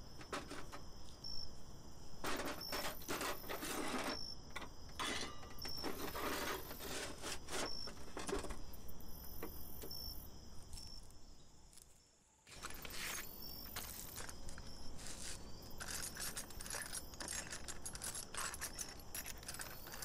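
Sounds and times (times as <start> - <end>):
metal discs clinking and scraping: 0.2 - 0.8, 2.2 - 8.6, 12.5 - 20.0.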